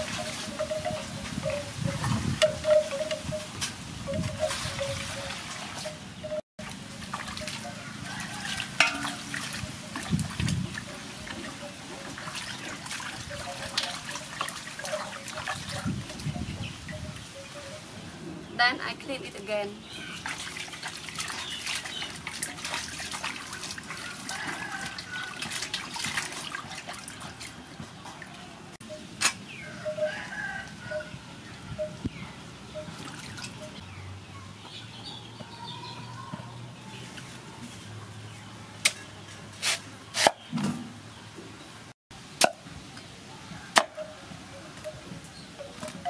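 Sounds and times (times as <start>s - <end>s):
water splashing in a metal basin: 0.0s - 17.2s, 20.1s - 28.4s, 32.8s - 33.8s.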